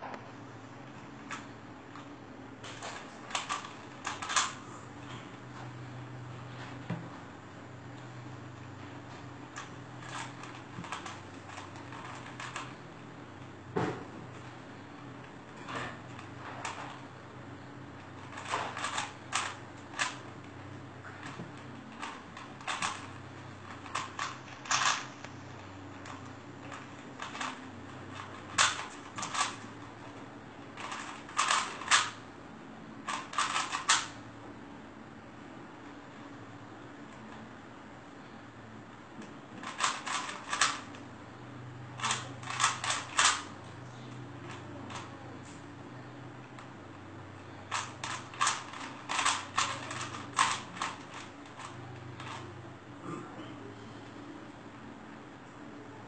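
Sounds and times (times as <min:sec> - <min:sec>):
steady low hum: 0:00.0 - 0:56.0
puzzle cube plastic clacks: 0:02.7 - 0:04.6, 0:09.6 - 0:12.8, 0:18.2 - 0:20.6, 0:21.2 - 0:25.3, 0:26.0 - 0:30.2, 0:30.8 - 0:32.2, 0:33.0 - 0:34.2, 0:39.6 - 0:41.0, 0:42.0 - 0:43.6, 0:47.7 - 0:52.5.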